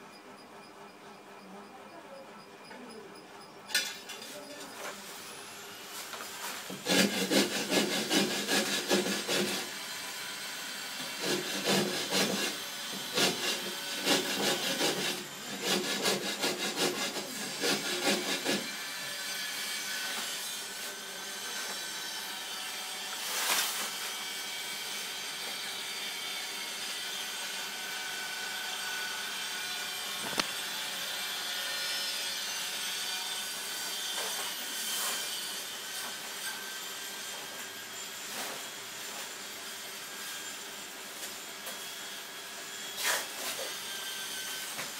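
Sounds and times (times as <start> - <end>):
tile scraped with rasping strokes: 5.9 - 9.7, 11.2 - 18.7, 23.1 - 24.1, 34.1 - 36.3, 43.0 - 43.8.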